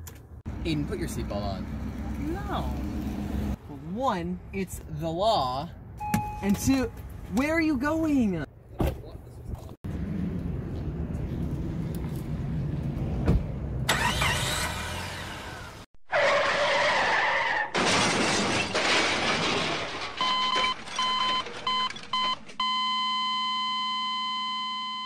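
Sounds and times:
car driving: 0:00.4 - 0:03.6, 0:09.9 - 0:17.2
tyre screech: 0:13.9 - 0:17.8
loud crash: 0:17.7 - 0:21.7
long steady electronic tone: 0:22.7 - 0:25.0.

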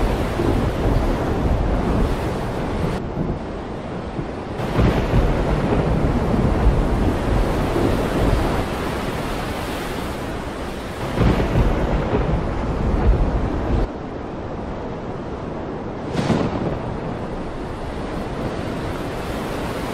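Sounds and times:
wind buffeting microphone: 0:00.0 - 0:19.9.

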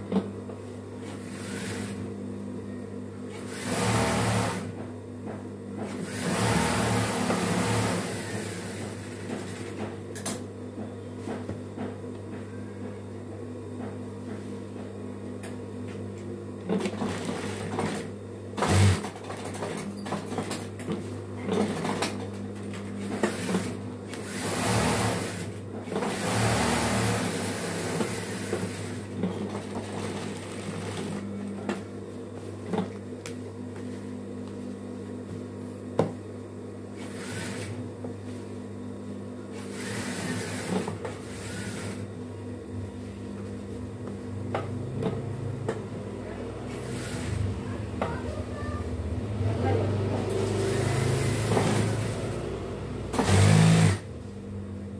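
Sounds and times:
fast machine stitching: 0:03.5 - 0:04.7, 0:05.9 - 0:09.7, 0:16.9 - 0:19.8, 0:23.2 - 0:31.2, 0:37.0 - 0:37.8, 0:39.6 - 0:42.1, 0:50.3 - 0:52.4, 0:53.1 - 0:54.1
sewing machine motor humming: 0:06.0 - 0:09.6, 0:16.8 - 0:19.7, 0:23.2 - 0:31.4, 0:39.6 - 0:42.1, 0:50.3 - 0:54.1.

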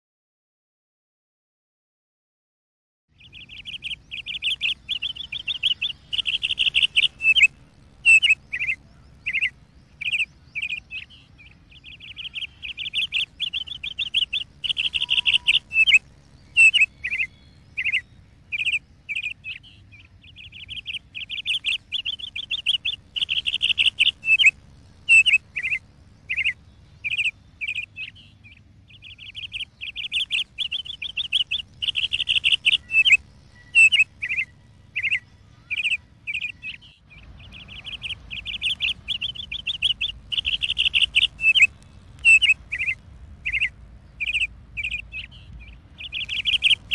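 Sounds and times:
bird trilling and whistling: 0:03.2 - 0:46.9
faint low hum: 0:03.2 - 0:46.9.

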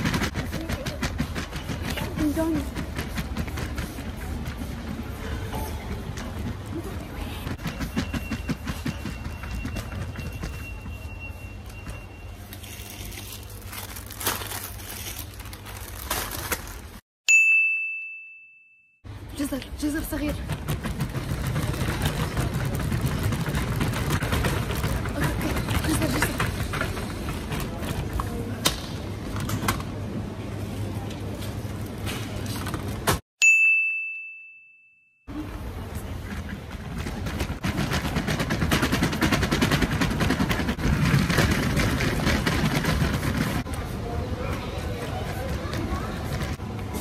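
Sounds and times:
trolley basket rattling: 0:00.0 - 0:11.2, 0:19.9 - 0:28.5, 0:35.9 - 0:43.8
shopping trolley wheels rumbling: 0:00.0 - 0:17.0, 0:19.1 - 0:33.2, 0:35.3 - 0:47.0
supermarket background noise: 0:00.0 - 0:17.0, 0:19.1 - 0:33.2, 0:35.3 - 0:47.0
bell-like ding: 0:17.3 - 0:19.0, 0:33.4 - 0:35.3.

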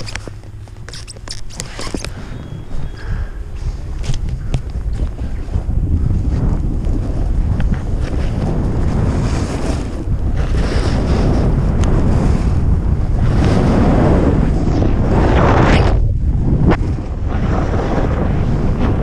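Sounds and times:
snowboard scraping over snow: 0:00.0 - 0:19.0
wind buffeting microphone: 0:00.0 - 0:19.0.

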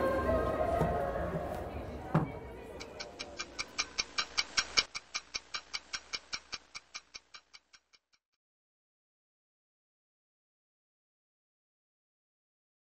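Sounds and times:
clock-like ticking: 0:02.8 - 0:08.2.

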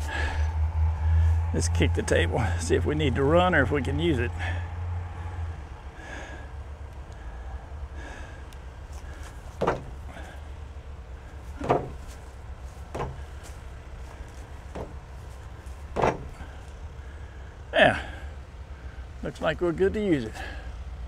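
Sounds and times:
kicks thudding on wooden table: 0:09.6 - 0:10.1, 0:11.6 - 0:12.2, 0:12.9 - 0:13.3, 0:14.7 - 0:15.0, 0:16.0 - 0:16.4.

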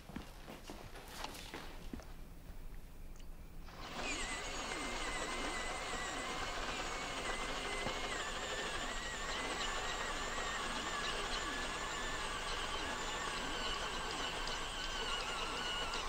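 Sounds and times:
electric pencil sharpener whirring: 0:03.7 - 0:16.0.

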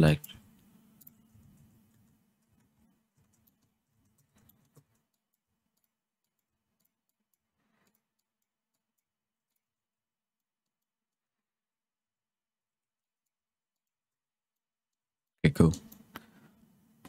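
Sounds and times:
computer mouse and keyboard clicks: 0:00.2 - 0:09.7.

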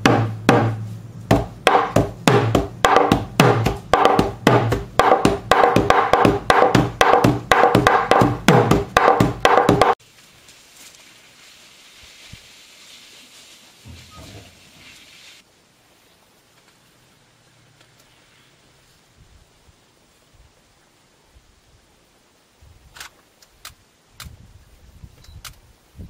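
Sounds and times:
wooden hand drum strikes: 0:00.0 - 0:10.0
faint outdoor background: 0:00.0 - 0:26.0.

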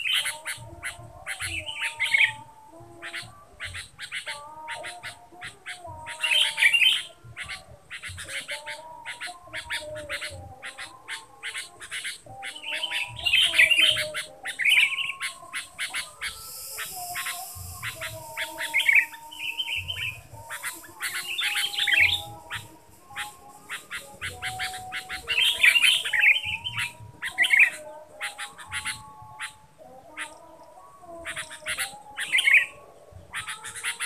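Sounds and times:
bird scratchy chattering: 0:00.0 - 0:30.5, 0:31.2 - 0:32.7, 0:33.3 - 0:34.0
sharp bird ticks: 0:03.0 - 0:32.4.

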